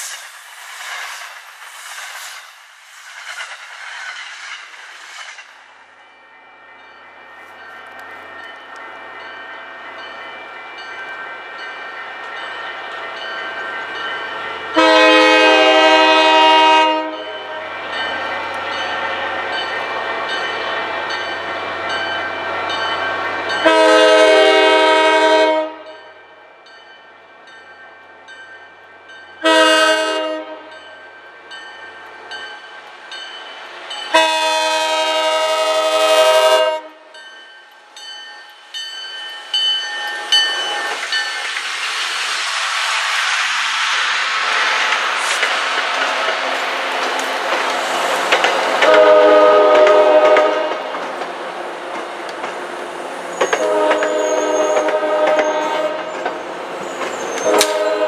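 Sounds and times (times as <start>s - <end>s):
train engine and wheels: 0.0s - 58.0s
crossing bell ringing: 6.4s - 24.4s, 25.8s - 34.4s, 37.0s - 41.5s
train air horn blasts: 14.7s - 17.4s, 23.6s - 26.0s, 29.4s - 30.7s, 34.1s - 37.1s, 48.8s - 50.9s, 53.5s - 56.2s, 57.4s - 58.0s.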